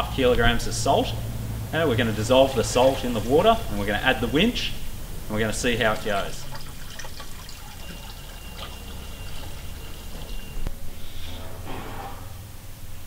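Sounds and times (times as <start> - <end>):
salt pouring into water: 5.7 - 10.6.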